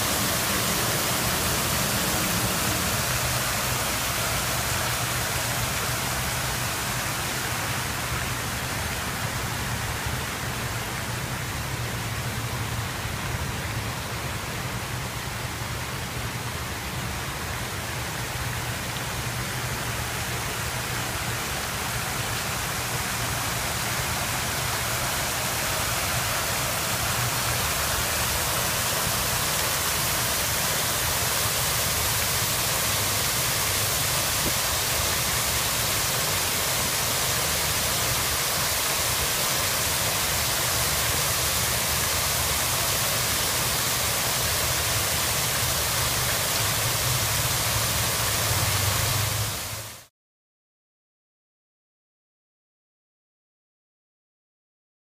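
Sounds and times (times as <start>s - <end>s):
stream running over rocks: 0.0s - 50.1s
waterfall pouring into pool: 0.0s - 50.1s.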